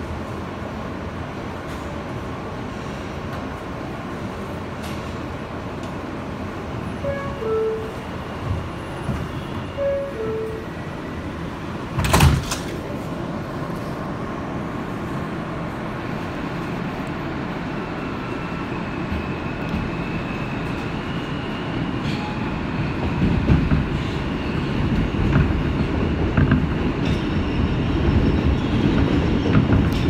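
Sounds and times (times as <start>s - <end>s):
train running noise: 0.0s - 30.0s
sliding doors thudding shut: 11.9s - 12.8s.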